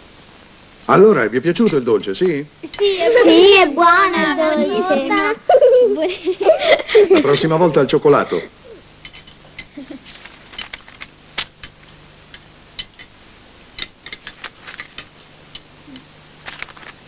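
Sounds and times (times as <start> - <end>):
cutlery clinking on plates: 9.0 - 9.8.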